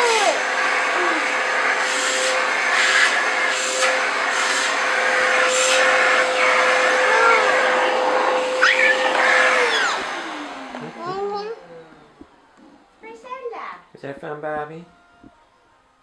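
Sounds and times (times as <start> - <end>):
vacuum cleaner whining: 0.0 - 15.9
toddler laughing and squealing: 6.9 - 7.7, 8.5 - 9.1, 10.8 - 11.6.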